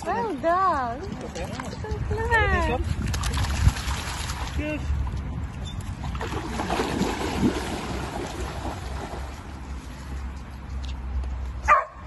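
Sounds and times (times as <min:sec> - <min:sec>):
wind rumble on microphone: 0:00.9 - 0:09.6
dog splashing through water: 0:02.8 - 0:04.6, 0:06.0 - 0:09.6.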